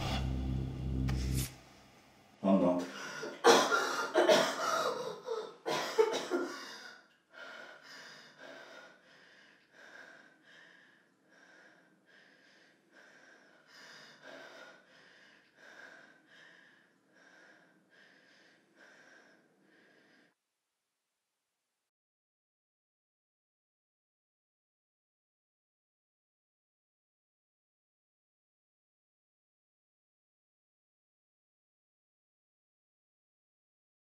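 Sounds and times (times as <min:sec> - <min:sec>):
woman panting: 0:02.9 - 0:05.6, 0:06.4 - 0:20.3
woman coughing and gasping: 0:03.2 - 0:06.8.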